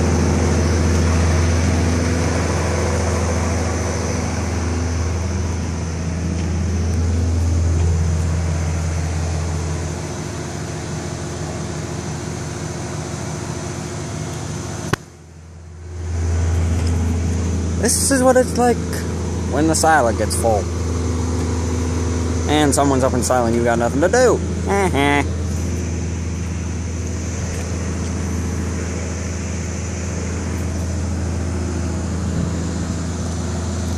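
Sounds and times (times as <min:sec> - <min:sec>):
tractor diesel engine humming: 0:00.0 - 0:33.9
sharp click: 0:14.9 - 0:15.2.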